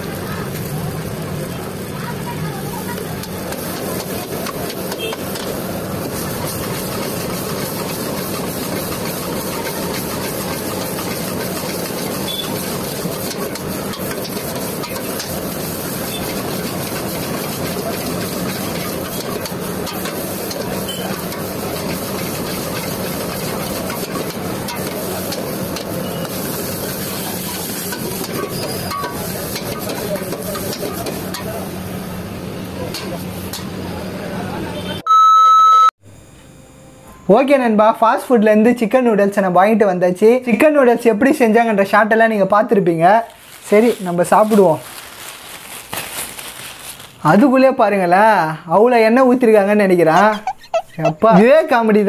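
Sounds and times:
noodles sizzling in a wok: 0.0s - 32.2s, 43.3s - 47.4s
gas burner hissing: 0.0s - 34.6s
ladle stirring in a wok: 3.2s - 31.7s.

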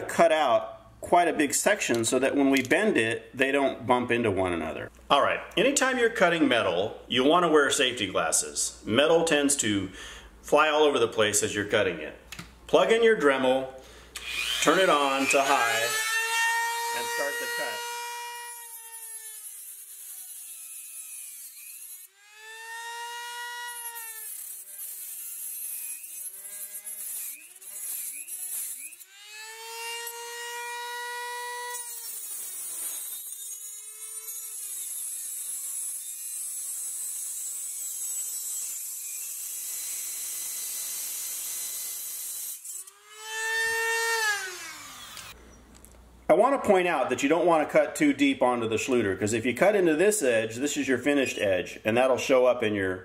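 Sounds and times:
rotary tool motor whining: 14.2s - 45.4s.

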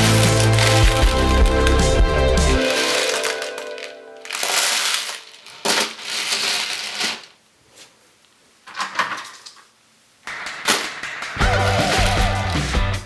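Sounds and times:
dry pasta and beans rattling: 0.0s - 7.4s
toy truck pushed through pasta: 4.3s - 7.3s.

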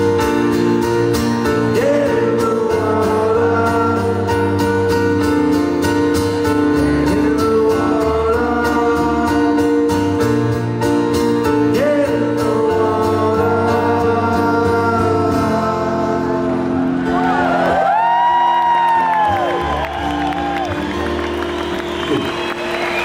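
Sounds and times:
man singing: 1.4s - 5.5s, 6.8s - 10.4s, 11.4s - 16.8s
crowd whistling and cheering: 16.8s - 23.0s.

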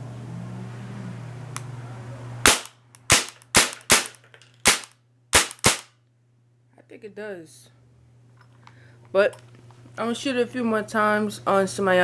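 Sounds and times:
airsoft gun shots: 2.4s - 5.9s.

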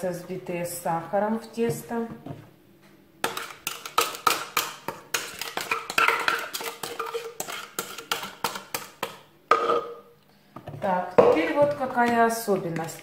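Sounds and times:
utensil scraping a bowl: 3.3s - 9.0s.

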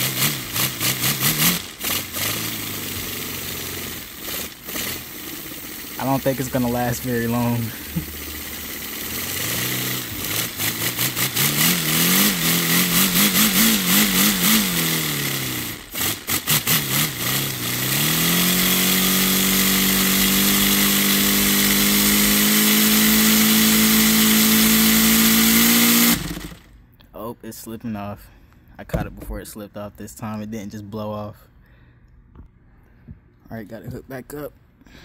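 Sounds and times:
air engine exhaust chuffs: 0.0s - 26.7s
engine high hum: 0.0s - 26.9s.

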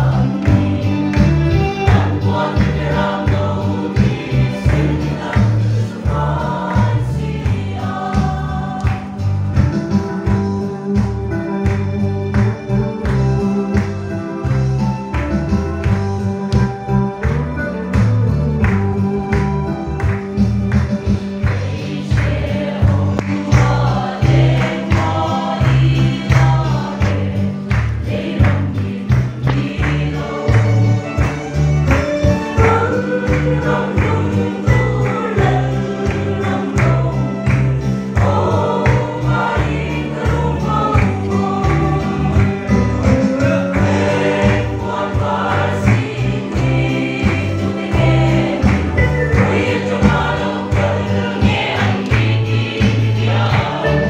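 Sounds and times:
mixed choir singing a hymn: 0.0s - 9.8s, 21.1s - 54.0s.

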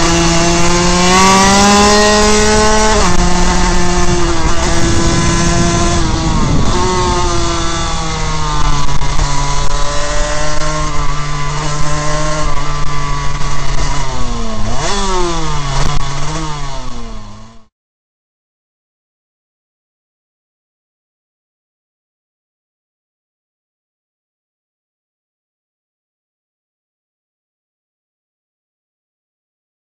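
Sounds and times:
two-stroke race engine revving: 0.0s - 17.7s
wind rush: 1.1s - 11.2s.

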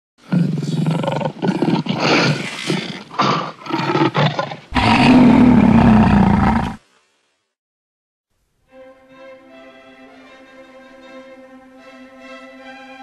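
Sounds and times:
lion roaring: 0.3s - 6.8s.

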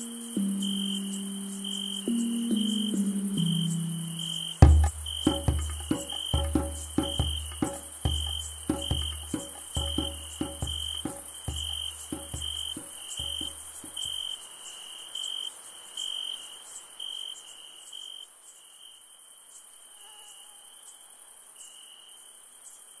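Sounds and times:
low music notes: 0.0s - 14.1s
thin high hiss: 0.0s - 14.1s
insects chirping: 0.0s - 18.9s.

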